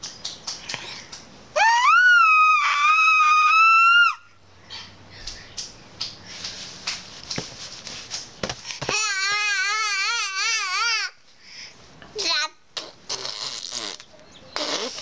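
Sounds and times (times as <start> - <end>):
baby squealing: 1.6 - 4.2
faint clicks and rustles: 4.7 - 9.1.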